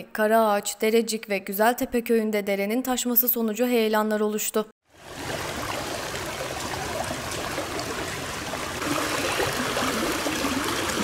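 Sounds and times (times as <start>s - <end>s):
floodwater rushing: 4.9s - 11.0s.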